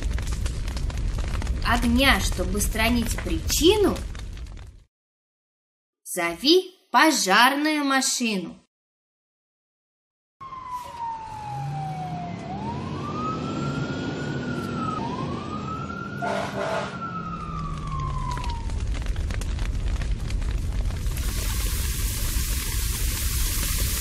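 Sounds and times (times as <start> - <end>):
rough rumble: 0.0 - 4.9, 17.1 - 24.0
fire engine siren wailing: 10.4 - 19.6.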